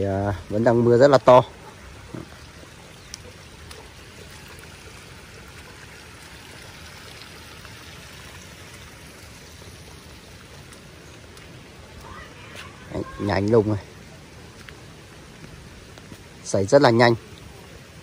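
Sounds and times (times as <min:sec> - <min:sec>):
heavy rain falling: 0:10.6 - 0:18.0.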